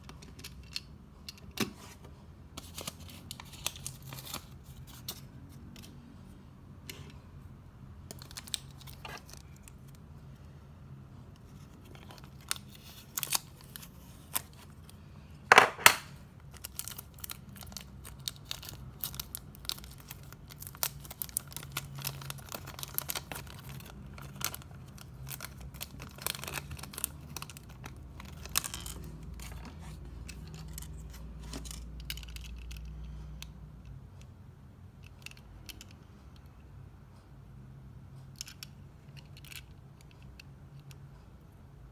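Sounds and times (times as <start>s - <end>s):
plastic packaging crinkling: 8.1s - 10.0s, 11.5s - 14.9s, 15.8s - 32.6s
sharp plastic crackle: 15.8s - 29.6s.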